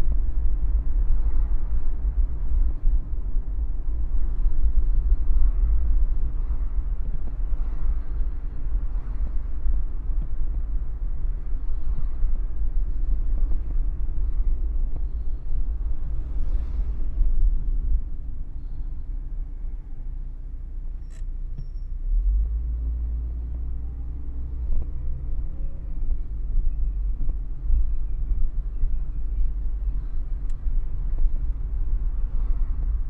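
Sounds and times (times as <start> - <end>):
car engine and road rumble: 0.0 - 33.0.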